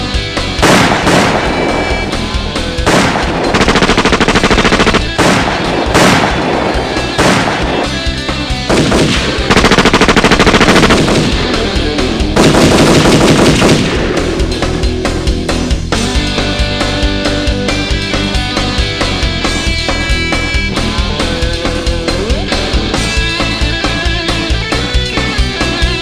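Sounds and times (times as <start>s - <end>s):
heavy distorted rock music: 0.0s - 26.0s.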